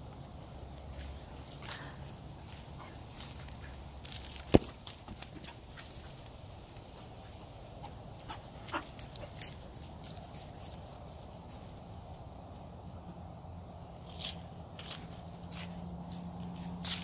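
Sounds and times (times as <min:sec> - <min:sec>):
dogs running on grass: 0:00.7 - 0:12.0
ball kicked thump: 0:04.4 - 0:04.9.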